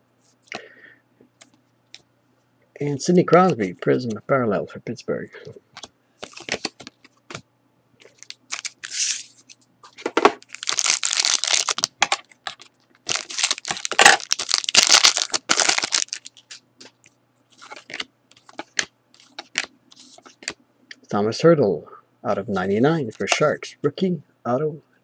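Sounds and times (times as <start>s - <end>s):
foil wrapper crinkling: 8.1s - 9.3s, 10.4s - 16.6s.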